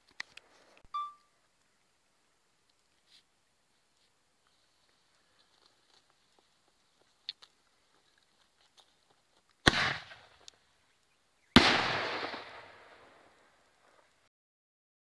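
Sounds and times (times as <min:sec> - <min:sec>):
firework launch bang: 0:09.7 - 0:10.2, 0:11.6 - 0:13.1
firework burst bang: 0:11.6 - 0:13.0.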